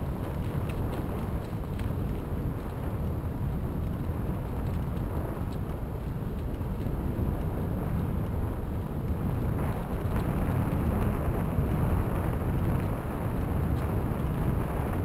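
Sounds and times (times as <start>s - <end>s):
bicycle tyres on gravel: 0.0s - 15.0s
wind buffeting microphone: 0.0s - 15.0s.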